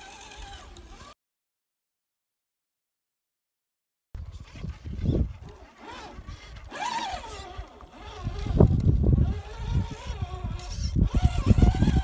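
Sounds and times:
toy car motors whining: 0:00.0 - 0:01.2, 0:04.2 - 0:12.0.

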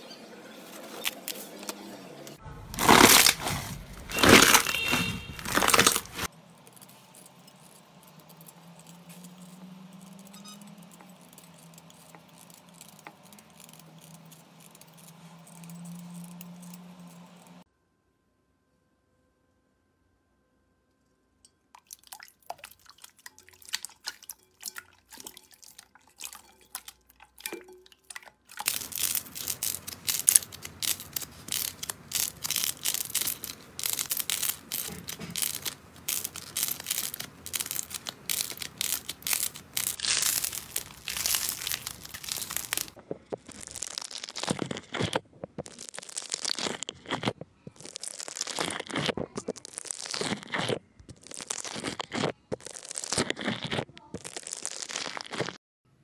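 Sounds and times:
slime crackling and popping: 0:02.8 - 0:06.3, 0:28.2 - 0:55.6
slime crunching squeezes: 0:02.8 - 0:06.3, 0:28.1 - 0:55.6.

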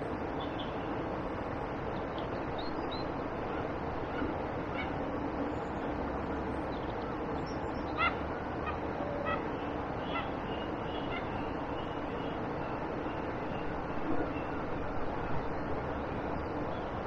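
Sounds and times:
geese honking: 0:10.1 - 0:11.4.

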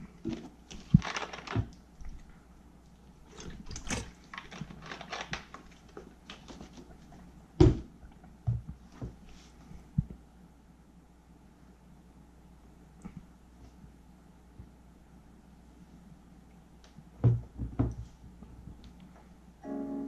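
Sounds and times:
plastic rustling: 0:00.1 - 0:02.4, 0:03.2 - 0:07.1.

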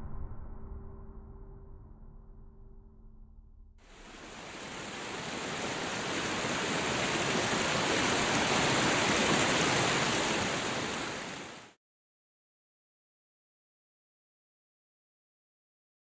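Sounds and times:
river rapids rushing: 0:03.9 - 0:11.7.

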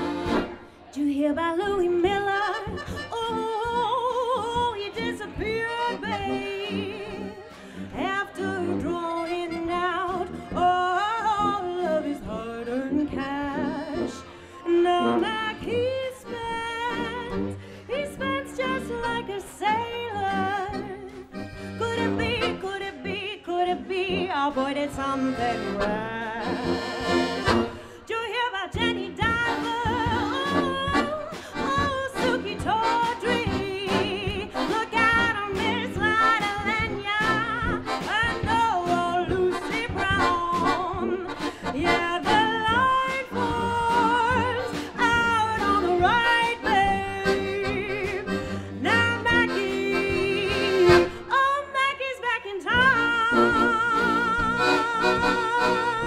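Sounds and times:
piano accordion: 0:00.0 - 0:00.8, 0:02.2 - 0:28.1, 0:28.7 - 0:51.5, 0:52.8 - 0:56.0
woman singing wordless lines: 0:00.9 - 0:27.1, 0:27.8 - 0:56.0
tuba: 0:02.2 - 0:27.9, 0:28.8 - 0:51.2.

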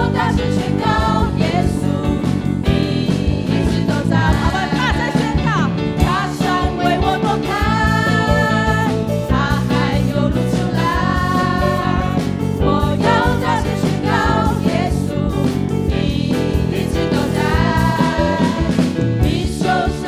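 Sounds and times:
group singing praise song: 0:00.0 - 0:20.0
live band with drums: 0:00.0 - 0:20.0
woman singing lead: 0:01.3 - 0:20.0.

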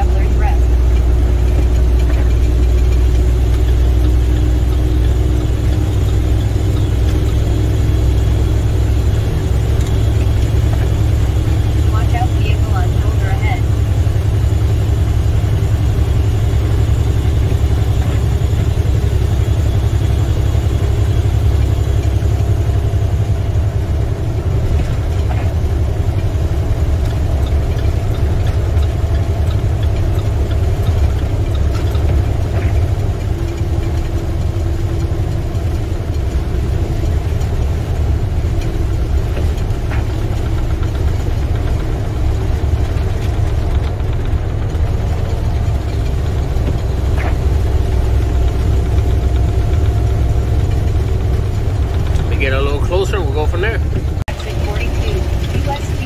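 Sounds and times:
road noise: 0:00.0 - 0:56.0
truck diesel engine drone: 0:00.0 - 0:56.0.

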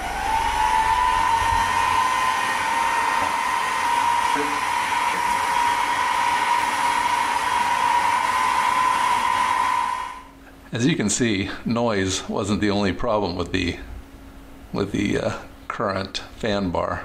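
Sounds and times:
air hissing: 0:00.0 - 0:10.3
cooling fans whining: 0:00.0 - 0:17.0.

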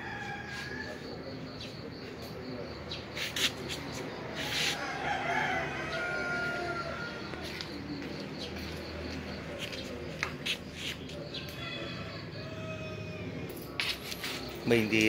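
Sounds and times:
rooster crowing: 0:00.0 - 0:01.4, 0:04.4 - 0:07.9, 0:11.2 - 0:13.5.

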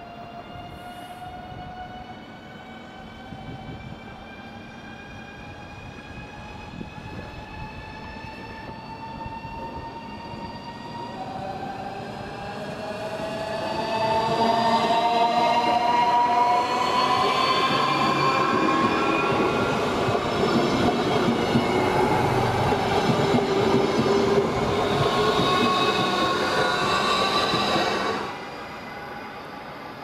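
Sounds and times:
electric train whine: 0:00.0 - 0:30.0
train wheels rumbling on rails: 0:05.4 - 0:28.4.

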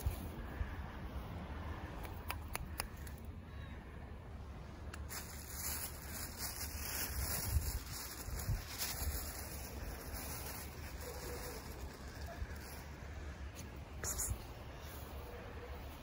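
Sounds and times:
wind buffeting microphone: 0:05.3 - 0:13.0.

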